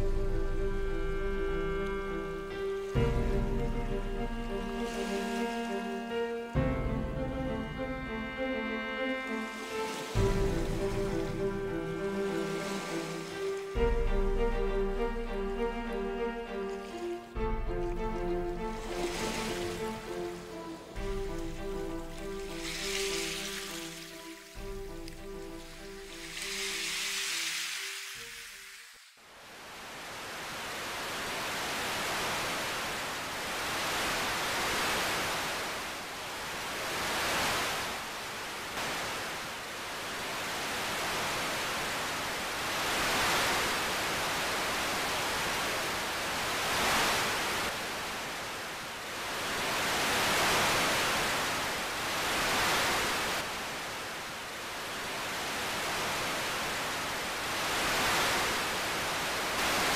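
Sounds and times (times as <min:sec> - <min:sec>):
surf washing onto a beach: 0:09.3 - 0:14.4, 0:18.7 - 0:59.9.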